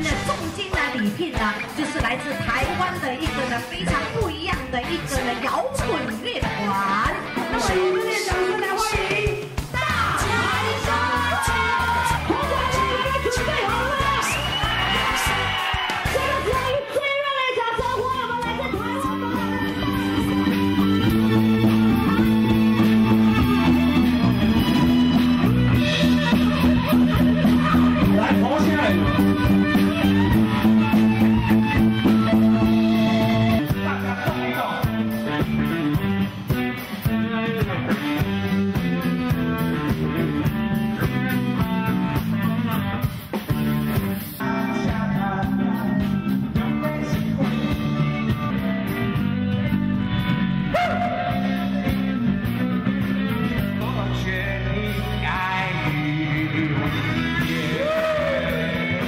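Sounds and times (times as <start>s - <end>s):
rock band playing: 0.0s - 59.0s
person singing: 44.4s - 48.7s, 53.3s - 59.0s.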